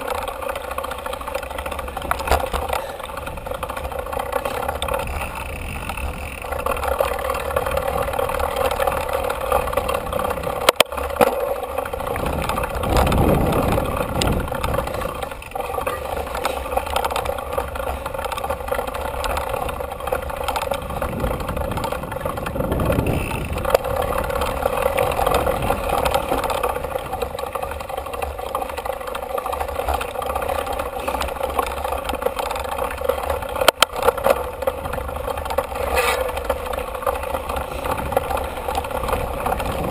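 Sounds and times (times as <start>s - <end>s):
bike clattering over bumps: 0.0s - 39.9s
bike tyres rolling on dirt: 0.0s - 39.9s
wind over microphone: 12.0s - 15.4s, 20.6s - 27.4s, 37.6s - 39.9s.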